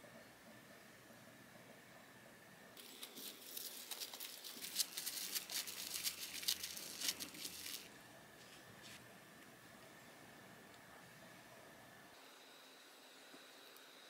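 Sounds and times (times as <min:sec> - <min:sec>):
plastic wrap crinkling: 0:02.8 - 0:07.9.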